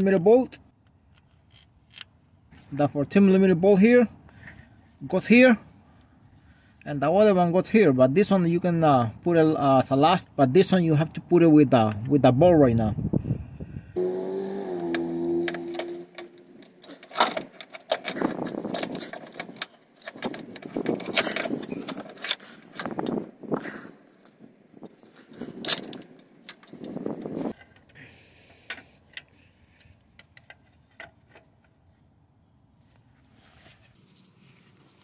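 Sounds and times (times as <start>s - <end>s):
metal clinks and rattles: 1.1s - 2.2s, 15.6s - 23.2s
gloved hands rustling: 33.0s - 35.0s.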